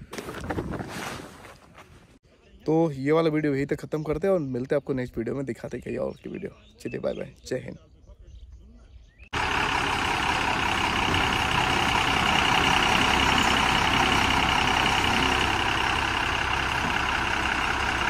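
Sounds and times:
lorry diesel engine running: 9.4s - 18.0s.

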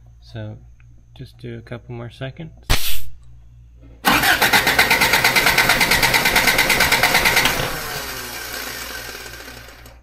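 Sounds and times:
starter cranking engine: 4.1s - 10.0s.

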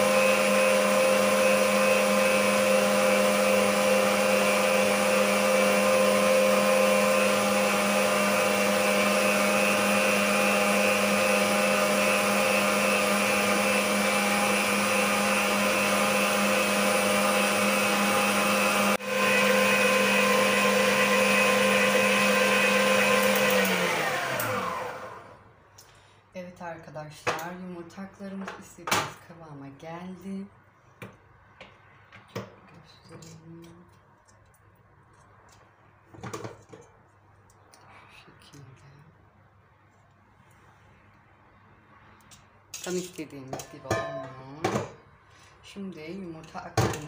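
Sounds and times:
stand mixer motor whining: 0.0s - 25.4s.

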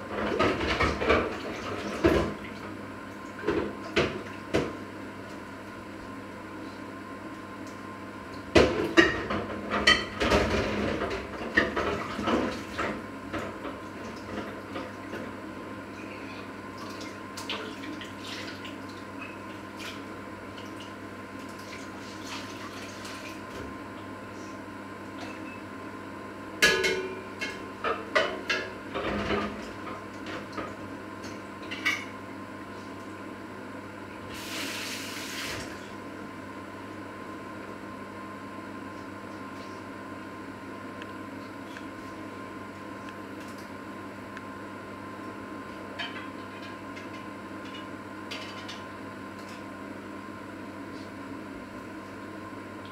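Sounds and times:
dishes clattering in a sink: 0.1s - 2.4s, 8.6s - 15.0s, 26.6s - 30.8s, 46.0s - 48.8s
dishes clinking: 26.6s - 27.6s.

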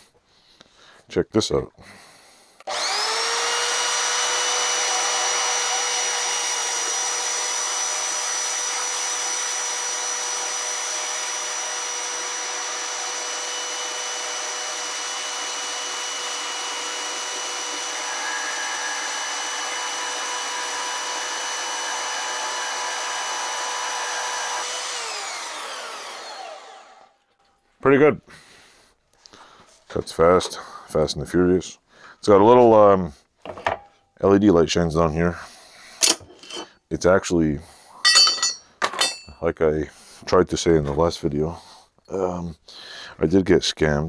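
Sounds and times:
bandsaw motor whine: 2.6s - 27.2s.

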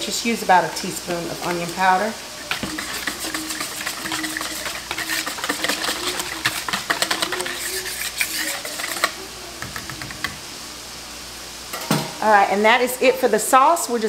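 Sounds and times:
whisk rattling in plastic bowl: 1.4s - 10.4s.

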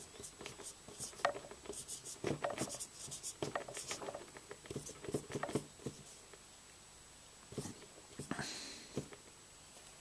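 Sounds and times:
marker pen writing on whiteboard: 0.0s - 6.2s.

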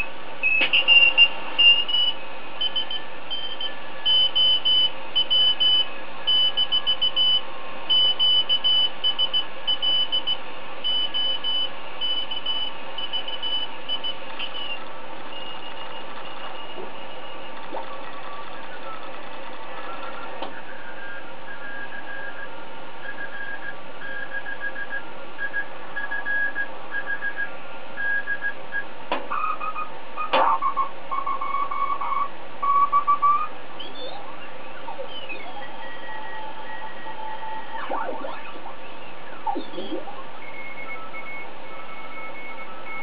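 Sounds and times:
radio band hiss: 34.2s - 40.4s.

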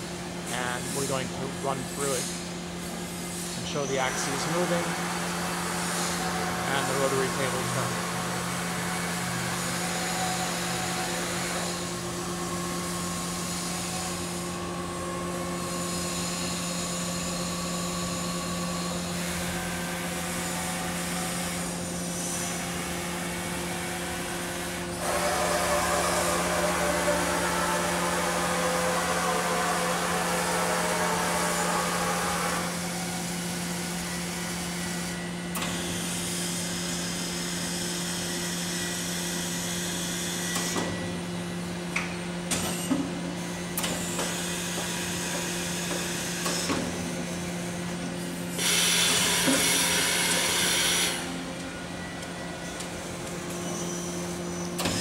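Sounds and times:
machine hum: 0.0s - 40.6s.

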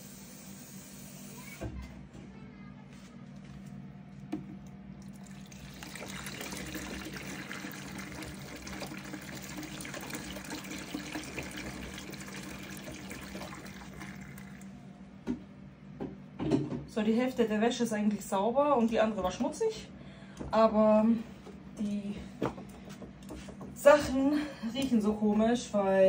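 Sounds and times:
washing machine hum: 0.0s - 26.0s
water sloshing in washing machine: 5.0s - 14.8s.

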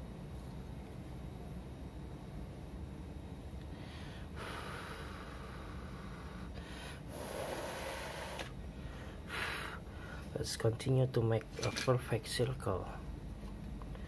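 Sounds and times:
low steady hum: 0.0s - 14.0s
person breathing heavily: 3.7s - 10.3s.

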